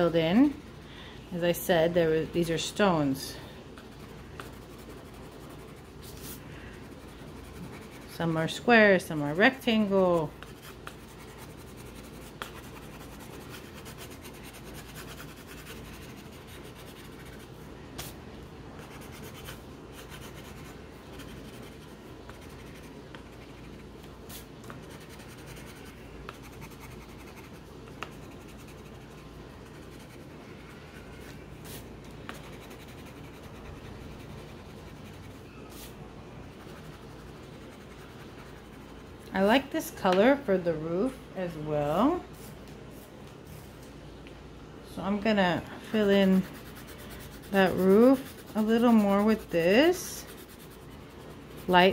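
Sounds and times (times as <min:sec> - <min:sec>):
pencil scratching on paper: 0:03.9 - 0:08.6, 0:09.3 - 0:17.5, 0:18.8 - 0:35.9, 0:45.9 - 0:51.9.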